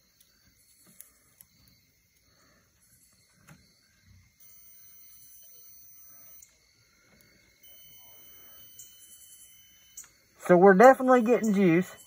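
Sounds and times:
multimeter continuity beep: 4.4 - 12.0.

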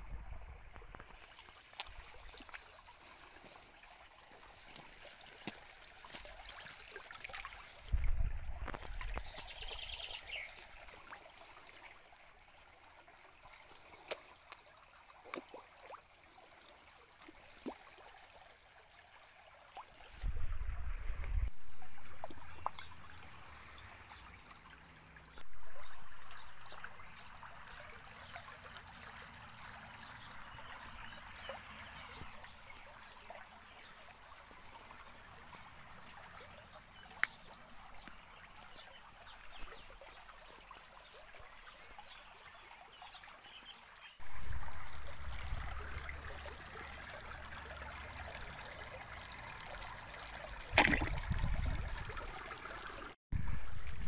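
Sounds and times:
small water splashes: 0.0 - 20.7, 21.4 - 54.0
stream water trickling over stones: 0.0 - 54.0
wind buffeting microphone: 7.9 - 9.4, 20.1 - 22.1, 50.8 - 52.2.

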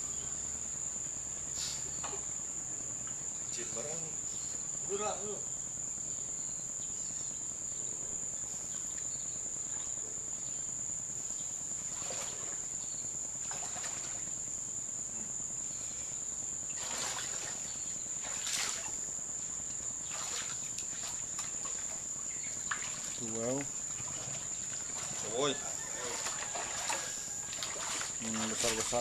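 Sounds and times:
high-pitched insect drone: 0.0 - 29.0
footsteps wading through water: 13.4 - 14.2, 16.8 - 19.0, 20.0 - 29.0.

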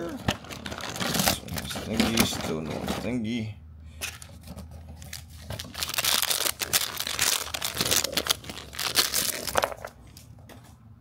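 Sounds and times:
plastic foil packet crinkling: 0.3 - 2.4, 4.5 - 10.0.

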